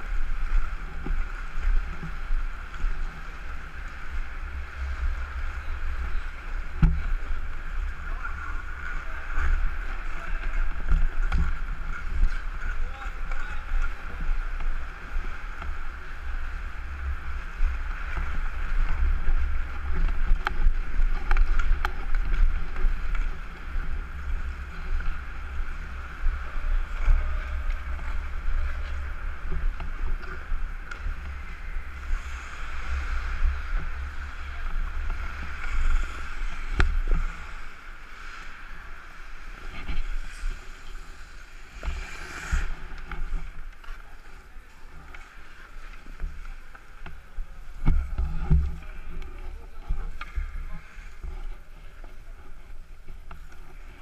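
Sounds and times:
skate blades hissing on ice: 35.4s - 43.4s.

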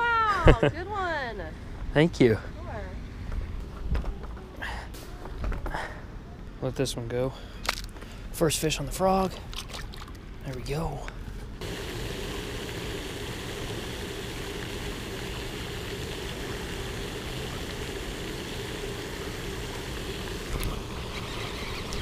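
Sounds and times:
low hum: 11.3s - 22.0s
fountain spray rushing: 11.6s - 22.0s.

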